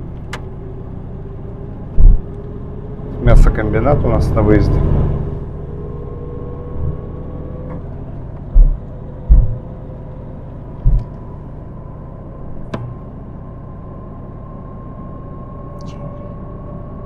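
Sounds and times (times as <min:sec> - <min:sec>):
car engine and tyre rumble: 0:00.0 - 0:17.0
heavy low thumps: 0:01.9 - 0:02.3, 0:08.4 - 0:09.8, 0:10.8 - 0:11.3.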